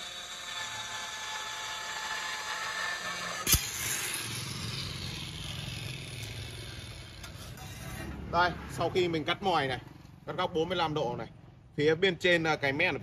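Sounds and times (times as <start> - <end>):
electric tile cutter cutting tile: 0.0 - 8.0.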